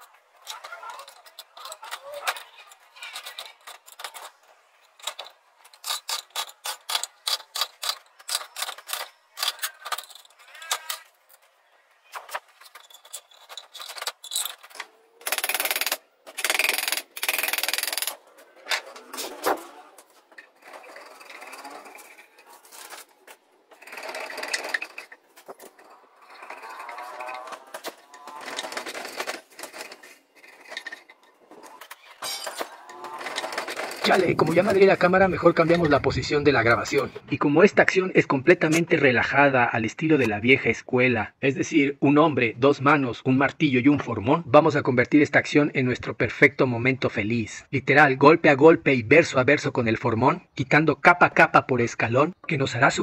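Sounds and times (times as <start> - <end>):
wood chisel cracking slivers: 12.1 - 35.7.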